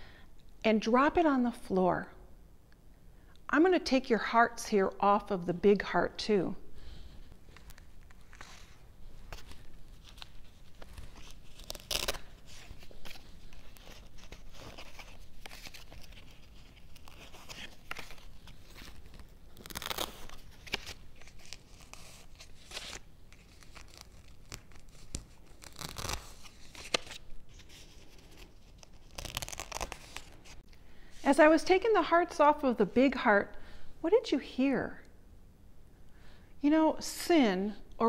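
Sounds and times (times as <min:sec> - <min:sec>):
velcro ripping apart: 0:07.6 - 0:30.6.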